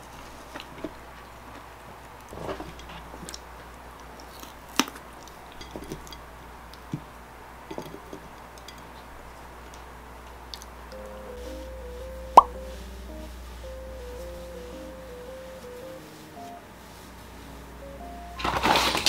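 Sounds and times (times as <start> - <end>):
faint low hum: 0.0 - 19.0
light chewing: 0.1 - 11.5.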